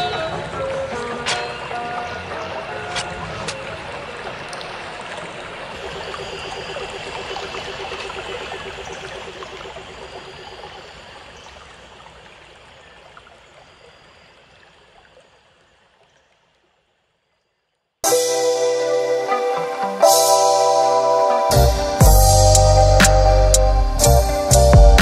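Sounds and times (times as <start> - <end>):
faint pulsing tone: 5.7 - 12.1.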